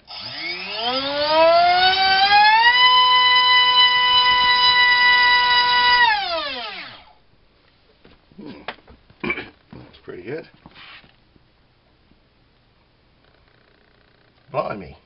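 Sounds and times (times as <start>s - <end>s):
electric motor high whine: 0.0s - 7.2s.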